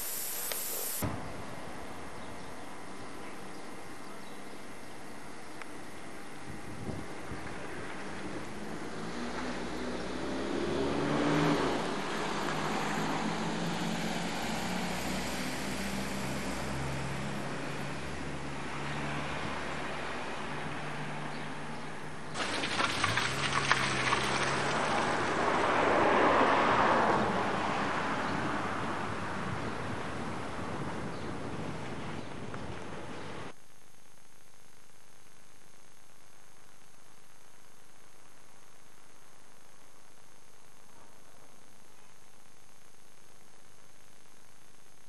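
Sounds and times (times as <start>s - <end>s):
road noise: 5.6s - 33.5s.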